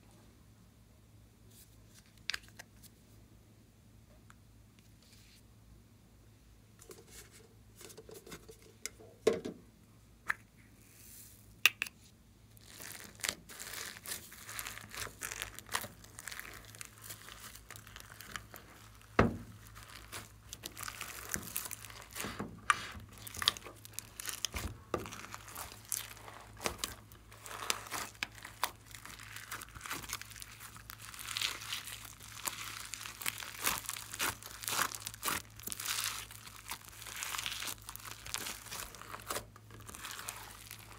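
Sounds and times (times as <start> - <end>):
slime squishing and crackling: 12.5 - 40.9.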